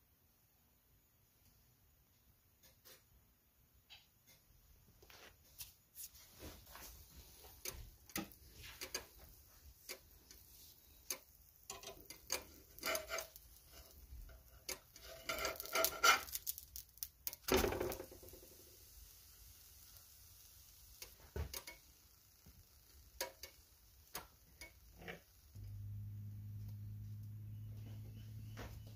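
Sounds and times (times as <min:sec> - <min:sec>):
spatula scraping frying pan: 0:09.9 - 0:16.6, 0:24.6 - 0:25.4
pancake thumping into pan: 0:21.2 - 0:21.7.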